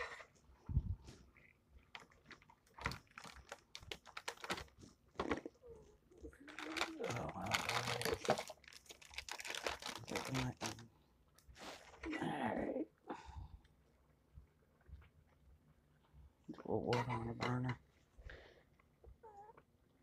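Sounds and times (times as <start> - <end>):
plastic crinkling: 1.9 - 5.6, 6.3 - 10.8.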